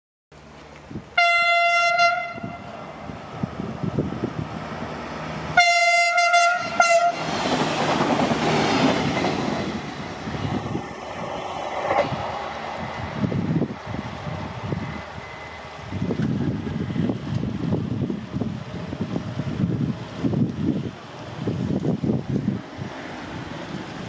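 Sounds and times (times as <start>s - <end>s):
train running noise: 0.4s - 24.0s
train horn blasts: 1.2s - 2.7s, 5.6s - 7.4s.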